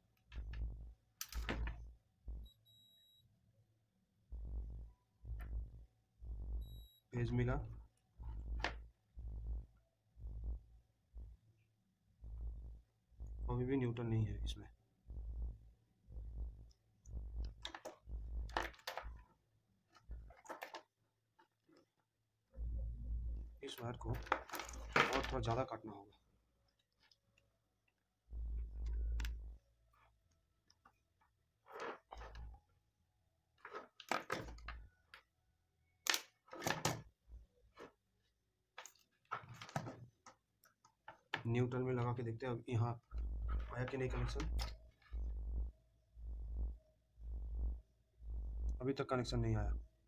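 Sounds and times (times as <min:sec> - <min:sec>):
dull low thumps: 0:04.4 - 0:06.9, 0:15.1 - 0:18.5, 0:43.1 - 0:44.6
objects handled on a desk: 0:20.0 - 0:22.0, 0:36.1 - 0:38.0, 0:38.7 - 0:41.6.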